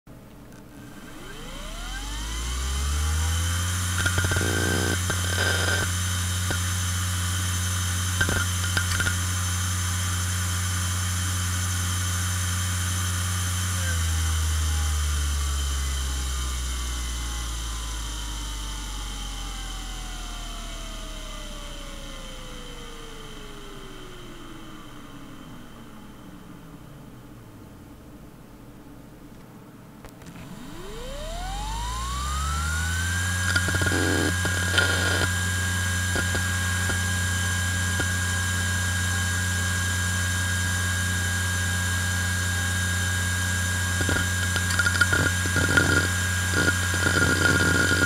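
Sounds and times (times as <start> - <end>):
hard drive whine and hum: 0.1 - 48.0
hard drive head seek clicks: 33.5 - 35.3.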